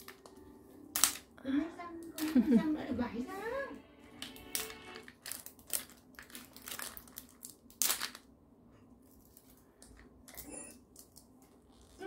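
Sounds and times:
thin plastic wrapping crinkling: 4.2s - 8.3s.

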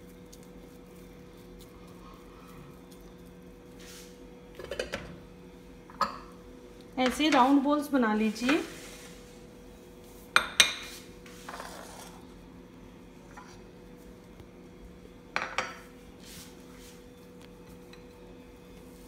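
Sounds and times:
faint steady hum: 0.0s - 19.0s.

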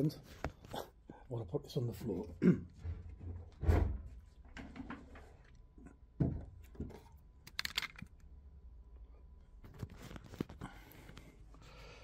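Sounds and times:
rattle of small clicks: 7.5s - 8.2s.

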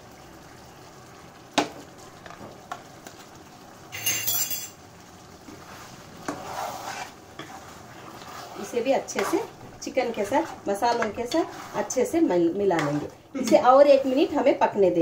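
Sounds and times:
metal spoon knocking and scraping pan: 10.8s - 11.9s, 12.6s - 14.4s.

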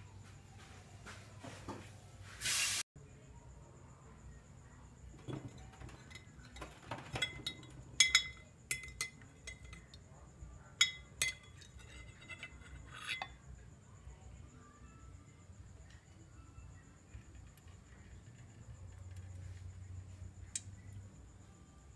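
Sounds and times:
metal ladle clinking on glass jar: 5.3s - 10.0s, 10.8s - 13.4s.

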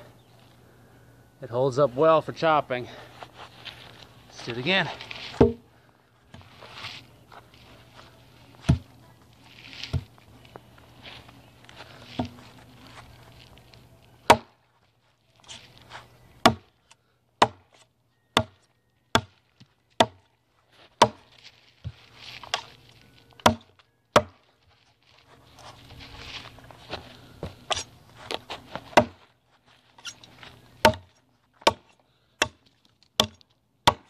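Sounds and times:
cleaver chopping into wood: 5.4s - 5.6s, 12.2s - 12.4s, 14.2s - 14.6s, 16.4s - 16.7s, 17.4s - 17.8s, 19.1s - 19.3s, 20.0s - 20.2s, 21.0s - 21.2s, 23.4s - 24.4s, 28.9s - 29.2s, 30.8s - 32.6s, 33.2s - 34.0s.

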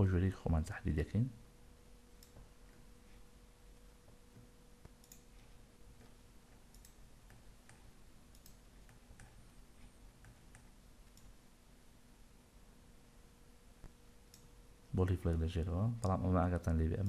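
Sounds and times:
low steady hum: 0.0s - 17.0s
computer mouse clicks: 2.2s - 2.5s, 4.4s - 9.4s, 10.2s - 11.4s.

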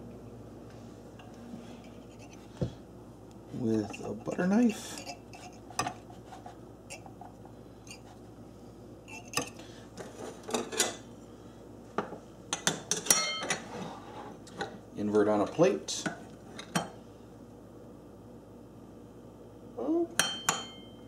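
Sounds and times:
knife scraping ceramic ramekins: 1.7s - 2.5s, 3.6s - 8.2s.

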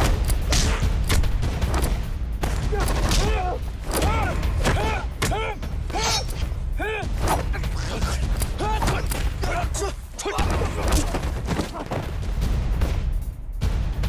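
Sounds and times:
men grunting and yelling: 2.5s - 12.2s.

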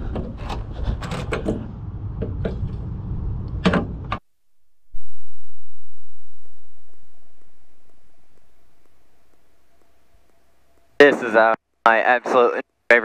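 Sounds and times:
wind rumble on microphone: 0.0s - 4.2s
faint steady hum: 0.0s - 13.0s.

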